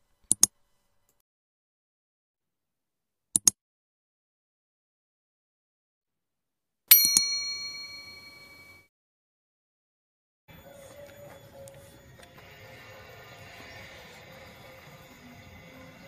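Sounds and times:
sharp clicks: 0.2s - 1.2s, 3.4s - 3.6s
bell-like ding: 6.9s - 8.9s.

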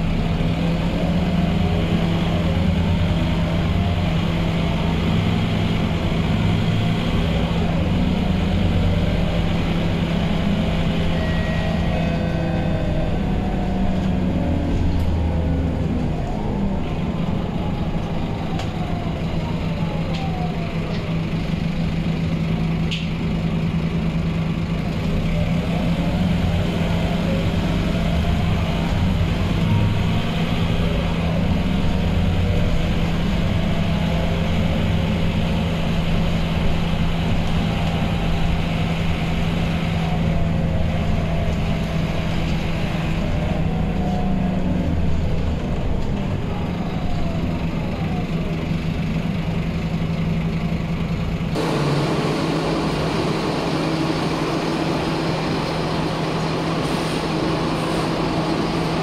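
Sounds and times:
bus diesel engine humming: 0.0s - 59.0s
engine whine rising and falling: 51.5s - 59.0s.

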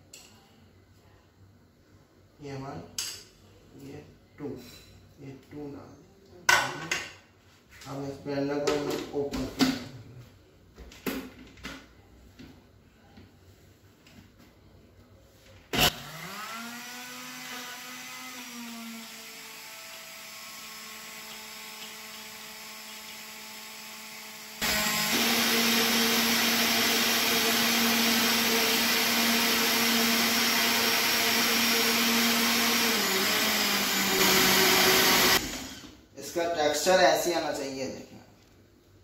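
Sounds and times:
blender motor whining: 15.8s - 36.0s.

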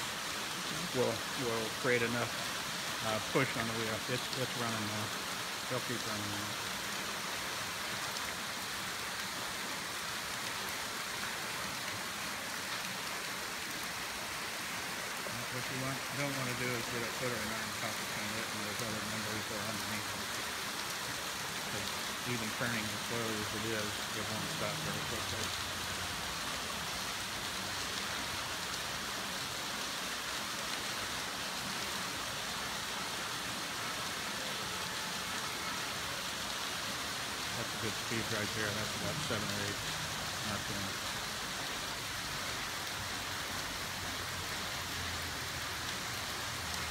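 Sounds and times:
falling water splashing: 0.0s - 46.9s
water pouring off water wheel: 14.8s - 20.7s.

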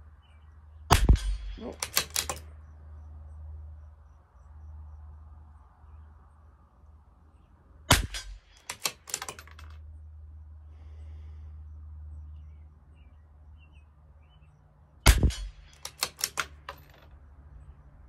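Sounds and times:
rifle shot: 0.9s - 2.4s, 7.9s - 9.5s, 15.1s - 16.6s
rifle bolt clicks: 1.2s - 2.4s, 8.0s - 9.8s, 15.1s - 17.1s.

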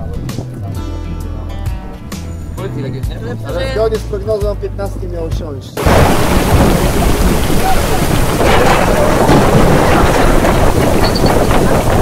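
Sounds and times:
breaking waves and spray: 5.8s - 12.0s
strong wind on microphone: 5.8s - 12.0s.

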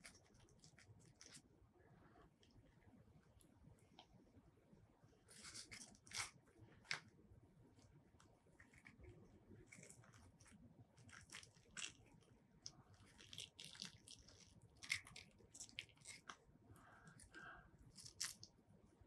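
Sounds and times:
soft tearing of fruit flesh: 5.3s - 7.2s, 7.8s - 18.6s.

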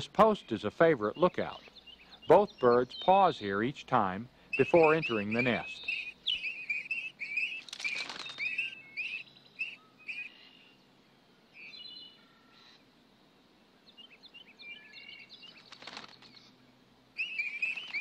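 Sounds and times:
nestlings begging chirps: 0.2s - 10.8s, 17.2s - 18.0s
faint bird chirps and whistles: 4.5s - 10.8s, 11.5s - 12.8s, 13.8s - 16.6s, 17.2s - 18.0s.

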